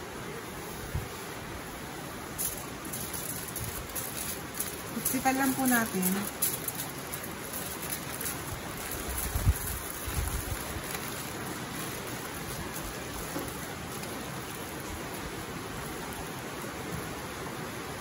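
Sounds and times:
aluminium foil crinkling: 0:02.4 - 0:16.6.

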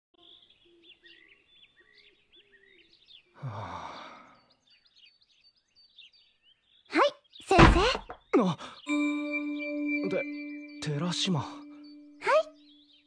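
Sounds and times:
small birds chirping: 0:00.2 - 0:13.0
person sighing: 0:03.4 - 0:04.4.

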